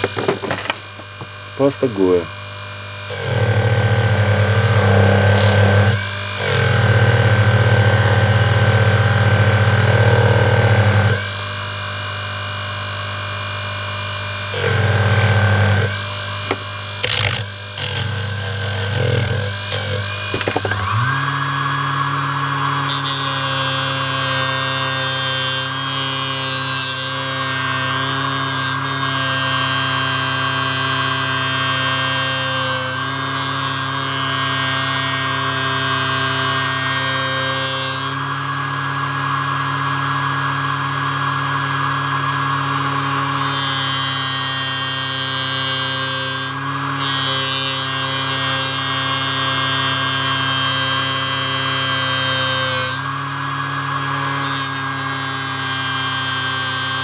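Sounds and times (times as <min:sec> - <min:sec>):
polishing machine motor whine: 0:00.0 - 0:50.3
knife rubbing on polishing wheel: 0:17.0 - 0:20.9.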